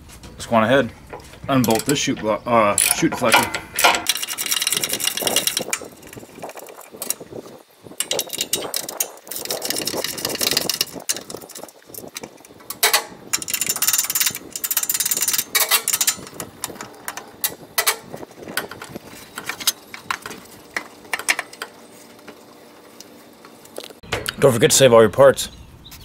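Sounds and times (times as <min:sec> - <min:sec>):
metal clinks and knocks: 0:01.0 - 0:07.3, 0:08.0 - 0:22.4
ratchet clicking: 0:01.1 - 0:22.4.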